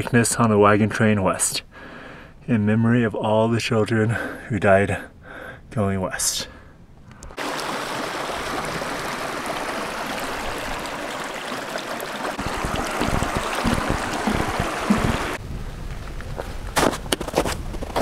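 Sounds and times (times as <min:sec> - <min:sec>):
creek water flowing: 0:07.3 - 0:15.4
low bumps: 0:12.4 - 0:18.0.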